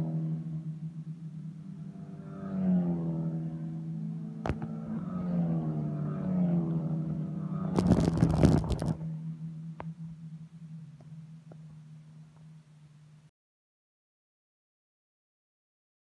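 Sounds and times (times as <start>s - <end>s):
racing car engines: 0.0s - 13.2s
steady low hum: 0.0s - 13.3s
loud crackling noise burst: 7.8s - 9.0s.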